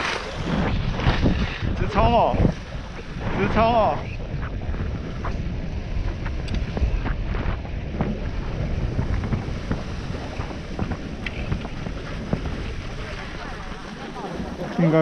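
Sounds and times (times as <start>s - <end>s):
skis hissing over snow: 0.0s - 4.2s
wind buffeting microphone: 0.0s - 15.0s.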